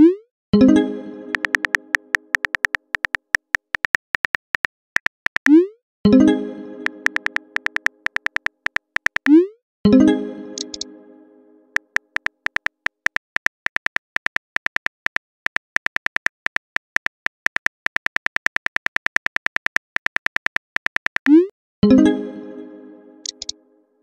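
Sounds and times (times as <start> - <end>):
keyboard typing clicks: 1.3 - 5.6, 6.8 - 9.4, 10.6 - 10.9, 11.8 - 21.5, 23.2 - 23.6
message chime: 6.1 - 8.0, 9.9 - 11.4.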